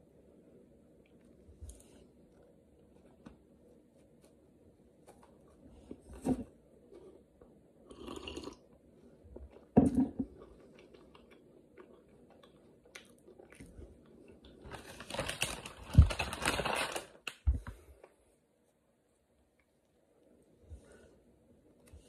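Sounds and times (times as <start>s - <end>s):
biscuit wrapper crinkling: 14.5s - 17.4s.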